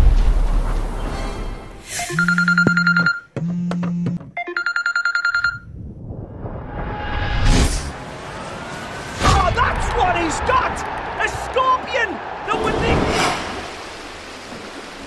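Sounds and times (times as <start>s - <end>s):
smartphone electronic beeps: 2.0s - 5.7s
whoosh: 5.8s - 8.0s, 12.8s - 13.8s.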